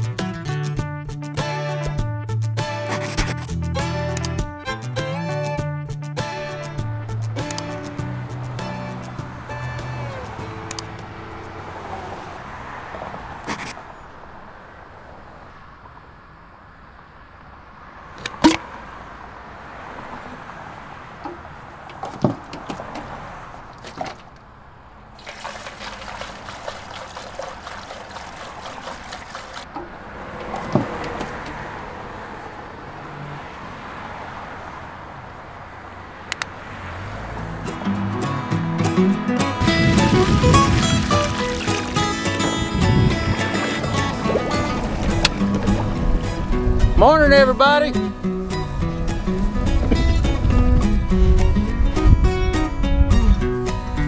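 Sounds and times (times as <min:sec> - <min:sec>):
fuel rushing into tank: 0:25.2 - 0:29.8, 0:39.6 - 0:46.4.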